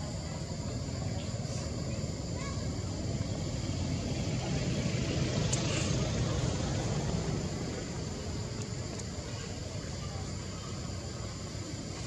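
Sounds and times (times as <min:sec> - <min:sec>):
low outdoor rumble: 0:00.0 - 0:12.0.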